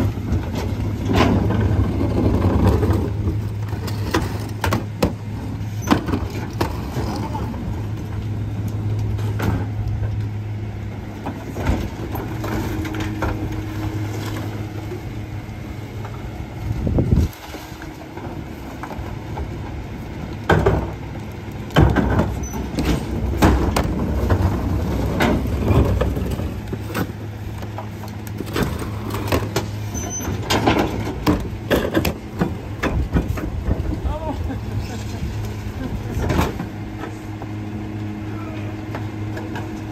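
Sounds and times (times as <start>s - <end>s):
plastic carts banging on hopper: 0.0s - 5.2s, 21.7s - 27.1s.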